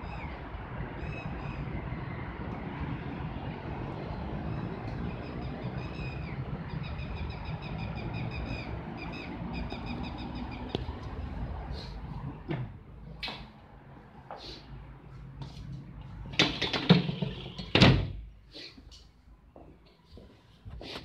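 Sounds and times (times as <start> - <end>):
low street rumble: 0.0 - 20.0
bird chirping trills: 4.6 - 10.8.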